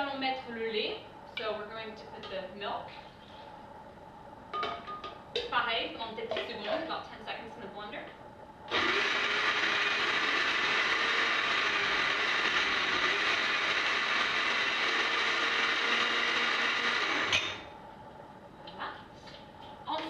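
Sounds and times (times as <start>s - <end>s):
blender motor running: 8.7s - 17.6s.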